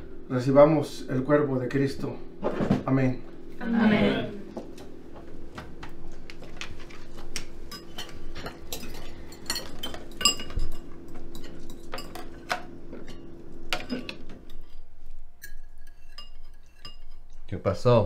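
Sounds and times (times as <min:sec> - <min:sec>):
low steady hum: 0:00.0 - 0:18.0
cutlery clinking on plates: 0:07.7 - 0:14.6.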